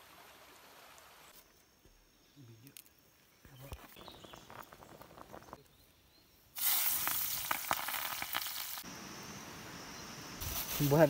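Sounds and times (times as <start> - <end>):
wood fire crackling and popping: 3.5 - 5.7, 6.6 - 8.9.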